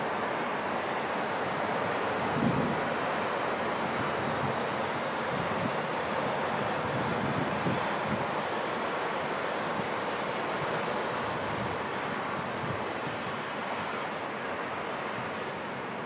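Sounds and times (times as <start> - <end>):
wind buffeting microphone: 2.2 - 2.8, 6.6 - 8.3.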